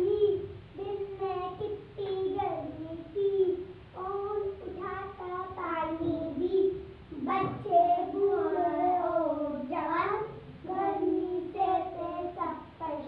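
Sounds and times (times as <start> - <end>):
children singing: 7.2 - 13.0.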